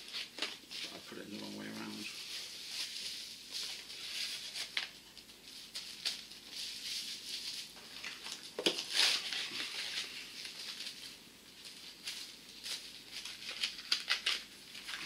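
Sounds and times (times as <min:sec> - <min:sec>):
packaging rustling: 0:00.0 - 0:15.0.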